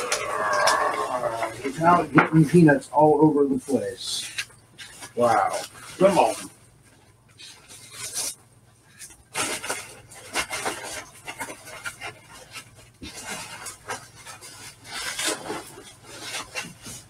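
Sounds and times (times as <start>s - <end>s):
bubble wrap rustling: 0.0s - 2.6s, 3.4s - 17.0s
packing peanuts rustling in a box: 4.9s - 6.5s.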